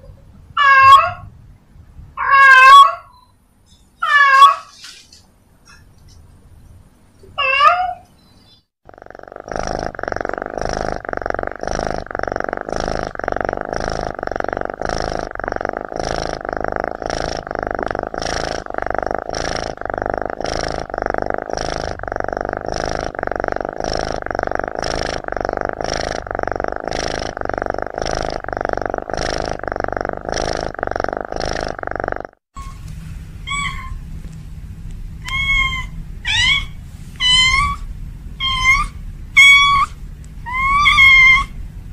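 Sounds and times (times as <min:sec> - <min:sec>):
cat meowing: 0:00.6 - 0:01.3, 0:02.2 - 0:03.1, 0:04.0 - 0:04.7, 0:07.4 - 0:08.1, 0:33.5 - 0:34.0, 0:35.2 - 0:41.6
cat purring: 0:08.8 - 0:32.7.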